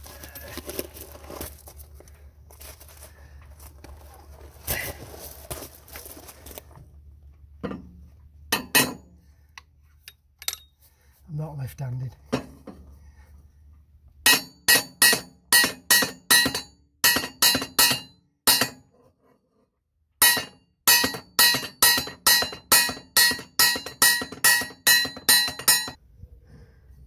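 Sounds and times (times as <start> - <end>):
hammer tapping metal blade: 20.2 - 26.0.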